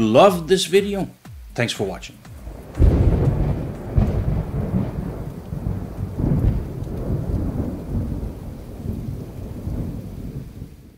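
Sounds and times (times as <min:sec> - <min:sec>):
rain falling: 0:00.0 - 0:10.9
low rolling thunder: 0:02.4 - 0:10.9.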